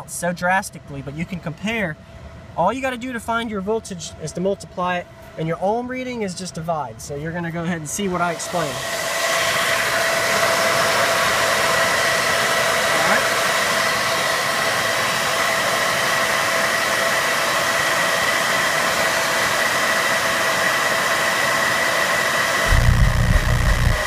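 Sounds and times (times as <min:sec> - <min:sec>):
thin constant whine: 0:00.0 - 0:14.3, 0:22.1 - 0:24.0
cooling fans whooshing: 0:00.0 - 0:24.0
deep low thump: 0:22.7 - 0:24.0.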